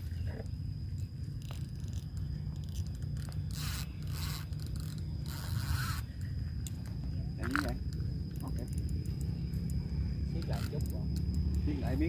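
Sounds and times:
low wind rumble: 0.0 - 12.0
fishing reel drag zipping: 1.4 - 6.8, 10.3 - 12.0.

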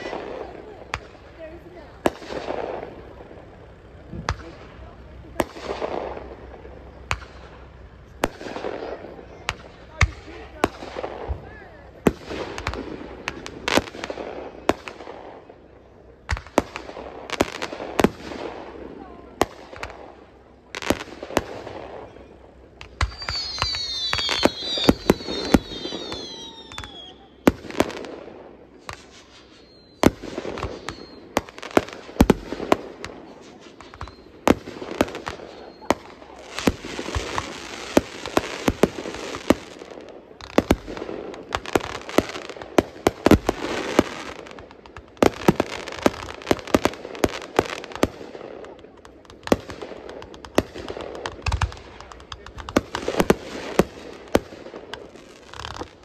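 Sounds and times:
fireworks bangs: 0.0 - 56.0
fireworks crackling: 0.0 - 56.0
fireworks whistles: 0.0 - 56.0.

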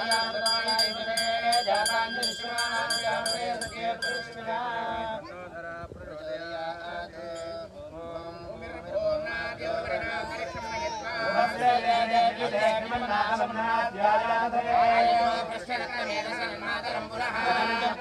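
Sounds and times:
hand bell ringing: 0.0 - 4.6
priests chanting: 0.0 - 18.0.

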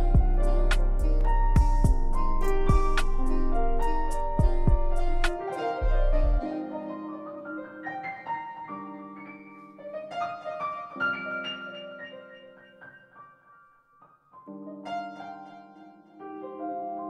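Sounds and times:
slow blues piano: 0.0 - 17.0.

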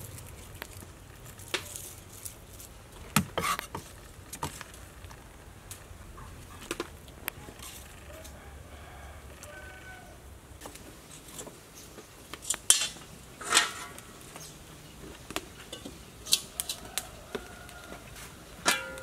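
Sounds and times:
metal wok clanking: 12.5 - 14.5, 18.6 - 19.0.

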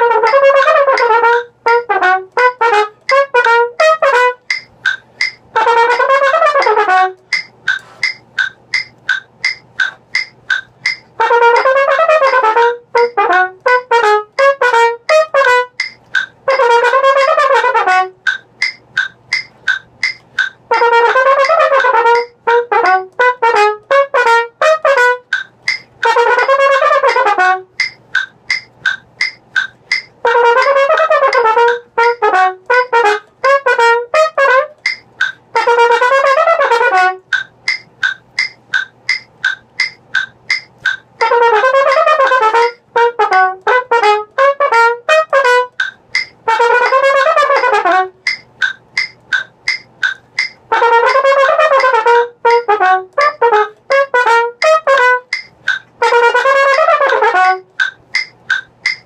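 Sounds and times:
solo trumpet playing: 0.0 - 4.6, 5.5 - 8.1, 11.2 - 18.4, 20.7 - 25.4, 26.0 - 27.9, 30.2 - 37.4, 41.2 - 48.4, 50.7 - 55.4, 56.0 - 57.8.

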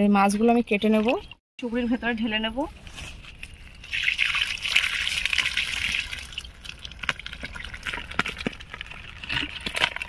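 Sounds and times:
water dripping: 3.4 - 10.0
water gushing through basket: 3.8 - 10.0.

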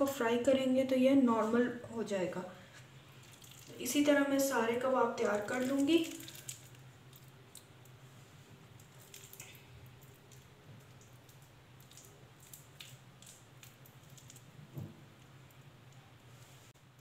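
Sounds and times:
low steady hum: 0.0 - 17.0
soft squishy handling noises: 2.6 - 3.8, 5.2 - 17.0.

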